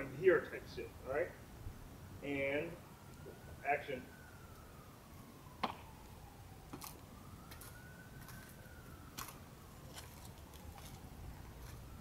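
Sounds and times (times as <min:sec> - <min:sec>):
faint emergency siren wailing: 0:00.0 - 0:12.0
high-heeled footsteps on debris: 0:06.7 - 0:08.6, 0:09.2 - 0:11.0, 0:11.6 - 0:11.9.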